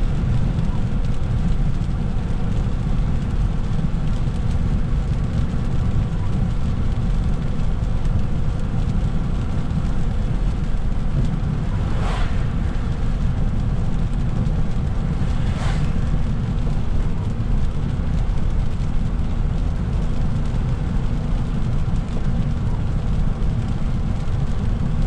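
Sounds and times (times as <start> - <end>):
car engine and tyre rumble: 0.0 - 25.0
hiss of wet pavement: 9.2 - 18.5
brief swishes: 11.6 - 13.1, 15.2 - 16.0.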